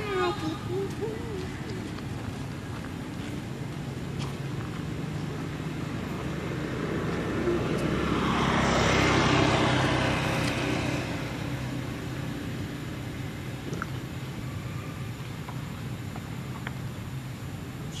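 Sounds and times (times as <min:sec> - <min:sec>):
motor vehicle passing by: 0:00.0 - 0:15.7
steady low hum: 0:00.0 - 0:18.0.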